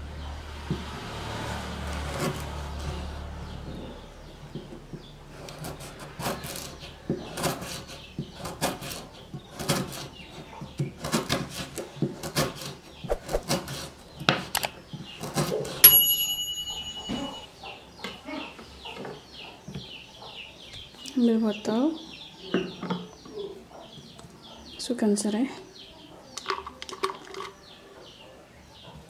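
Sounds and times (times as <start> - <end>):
high metallic ring: 15.8 - 17.5.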